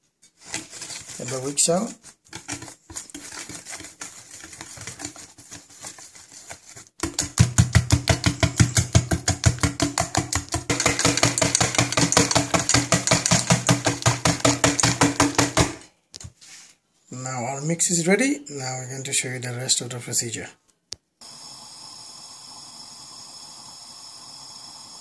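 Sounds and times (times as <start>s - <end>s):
whisk beating batter in metal bowl: 0.4s - 15.8s.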